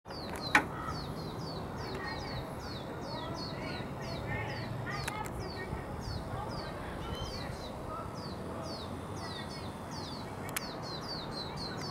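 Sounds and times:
sharp clicks: 0.1s - 0.8s, 10.4s - 10.8s
fledglings begging calls: 0.1s - 11.9s.

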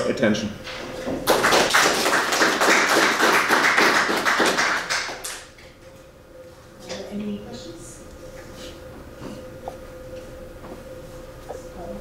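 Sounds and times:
audience applauding: 1.2s - 5.5s.

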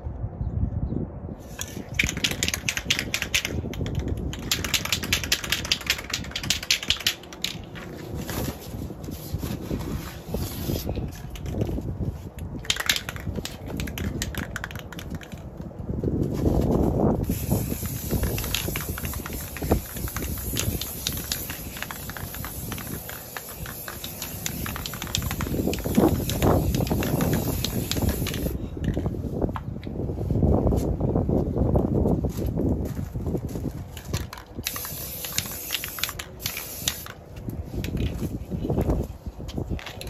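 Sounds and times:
spray paint can hissing: 1.4s - 9.3s, 10.2s - 15.4s, 17.2s - 29.0s, 34.0s - 40.0s.

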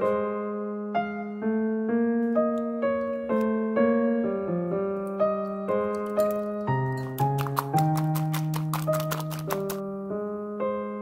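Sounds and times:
electric piano music: 0.0s - 11.0s.

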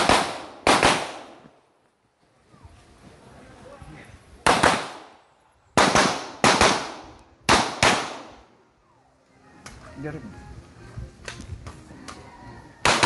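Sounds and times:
carbine gunshots with echo: 0.0s - 1.6s, 4.4s - 8.6s, 12.8s - 13.0s.

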